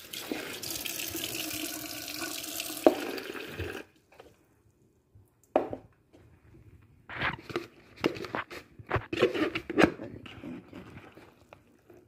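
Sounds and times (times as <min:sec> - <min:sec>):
tap water running into sink: 0:00.0 - 0:03.9.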